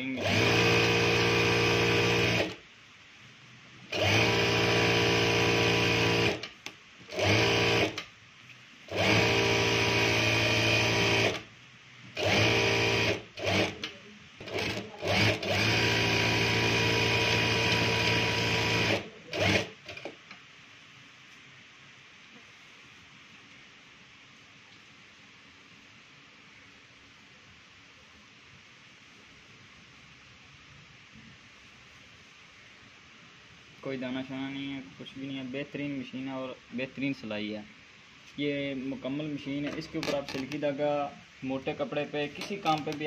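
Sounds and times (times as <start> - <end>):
sewing machine stitching: 0.0 - 2.6, 3.9 - 8.0, 8.9 - 11.4, 12.2 - 20.2, 39.6 - 40.6, 42.3 - 43.0.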